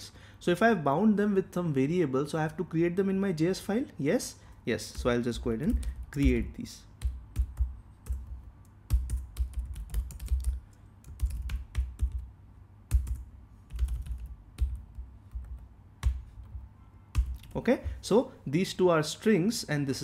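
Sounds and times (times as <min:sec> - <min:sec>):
typing on computer keyboard: 0:07.0 - 0:12.3, 0:12.9 - 0:17.6.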